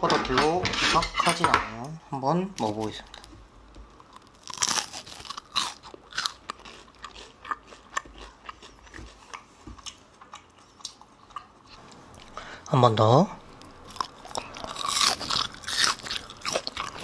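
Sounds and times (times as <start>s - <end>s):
crunching fried meat: 4.0s - 10.0s, 13.5s - 17.0s.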